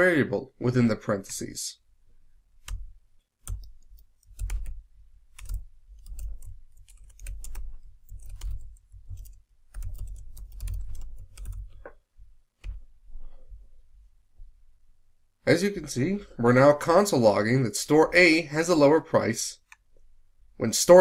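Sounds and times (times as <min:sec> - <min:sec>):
keyboard typing clicks: 0:02.6 - 0:04.8, 0:05.4 - 0:12.0.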